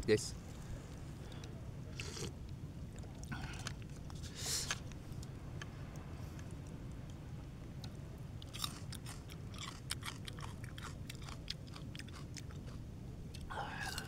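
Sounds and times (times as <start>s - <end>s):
steady low rumble: 0.0s - 14.0s
person chewing close up: 2.0s - 2.3s, 8.4s - 14.0s.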